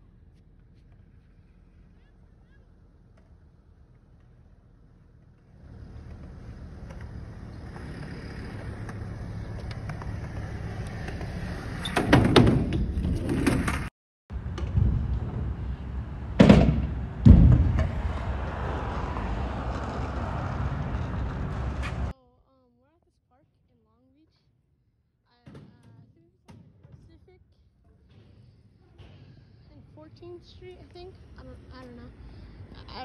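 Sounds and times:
scooter wheels rolling on concrete: 0.1s - 22.2s
scooter clacking on ground: 5.1s - 11.6s
loud knocks in concrete bowl: 16.4s - 18.3s.

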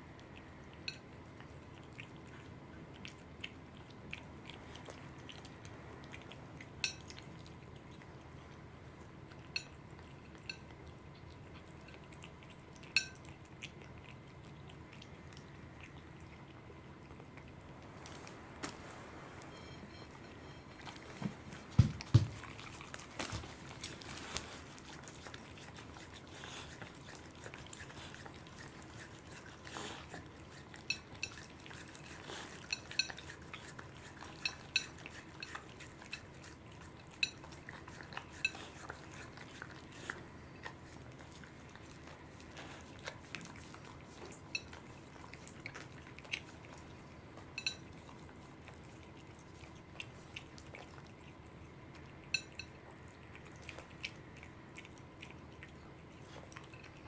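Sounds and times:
cat chewing: 0.0s - 57.0s
teeth clinking on a plate: 6.8s - 7.2s, 9.5s - 10.7s, 12.9s - 13.3s, 30.7s - 36.4s, 37.1s - 38.9s, 44.5s - 44.8s, 47.6s - 47.9s, 52.3s - 52.8s.

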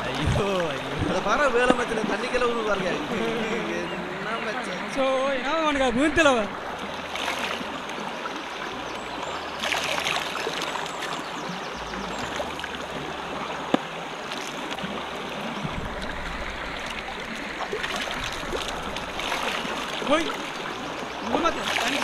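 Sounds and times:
river water flowing: 0.0s - 22.0s
water splashing and dripping: 6.5s - 22.0s.

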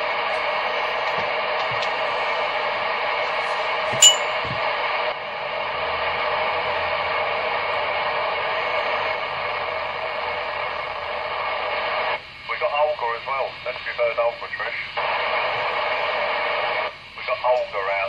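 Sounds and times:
radio static hiss: 0.0s - 4.0s, 8.0s - 18.0s
sharp click with ringing tone: 4.0s - 4.3s.

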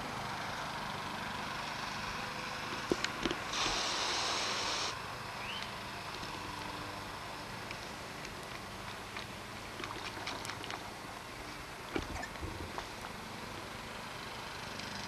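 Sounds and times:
hose spraying into plastic bowl: 3.5s - 5.0s.

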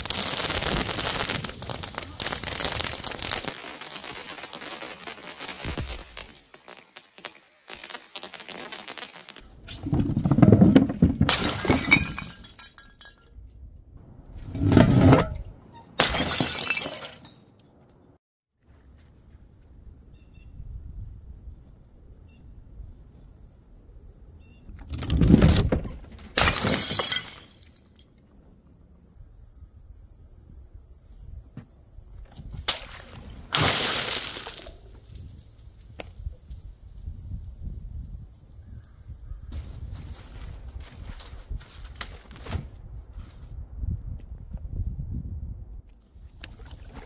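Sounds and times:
glass bottles smashing: 11.2s - 13.3s, 16.0s - 17.4s, 26.4s - 28.0s.

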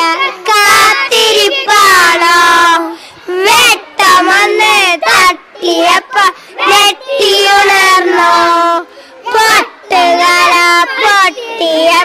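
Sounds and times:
boys singing into a microphone: 0.0s - 12.0s
quick breaths: 2.9s - 3.3s, 6.3s - 6.6s, 8.8s - 9.3s.

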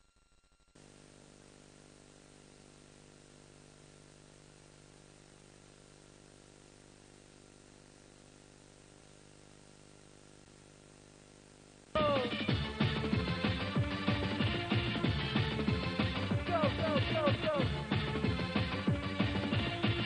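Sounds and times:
faint electrical hum with hiss: 0.7s - 12.5s.

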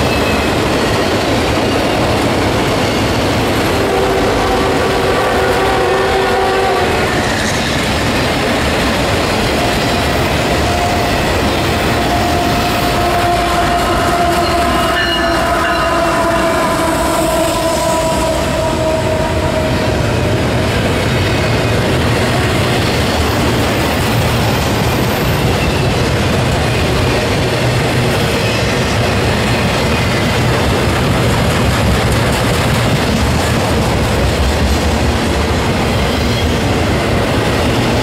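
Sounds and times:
train wheels rumbling on rails: 0.0s - 38.0s
locomotive horn: 3.7s - 7.3s, 10.4s - 20.6s.

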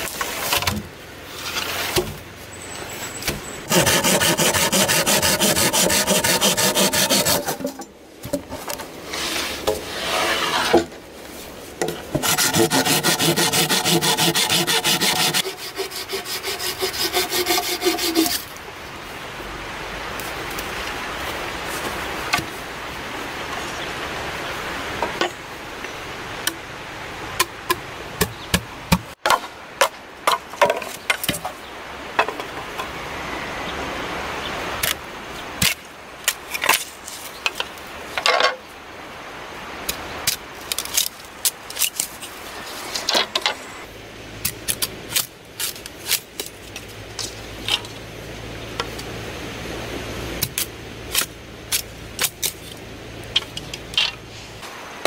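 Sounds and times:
scraping: 0.0s - 18.5s
blade rasping on bamboo: 3.7s - 7.8s, 9.1s - 10.9s, 11.8s - 18.5s.

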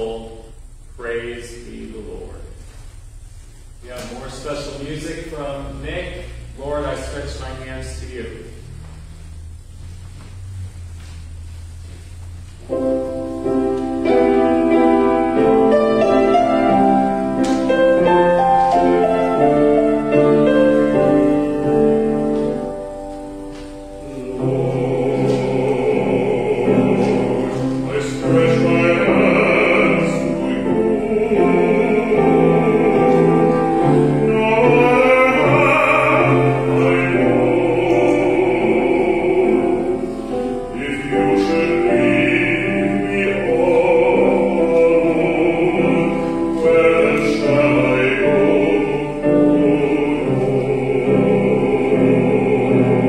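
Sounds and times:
pipe organ chords: 0.0s - 53.0s
person singing with vibrato: 12.7s - 53.0s.

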